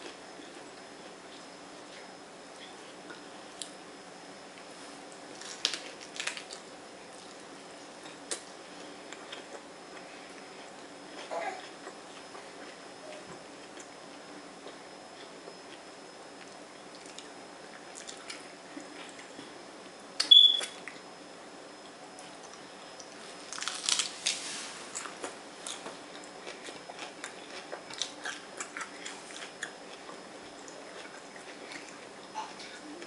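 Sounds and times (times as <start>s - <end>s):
chewing: 5.4s - 19.5s, 22.2s - 33.0s
sharp click with squeak: 20.2s - 20.8s
crunching bite: 23.5s - 25.8s.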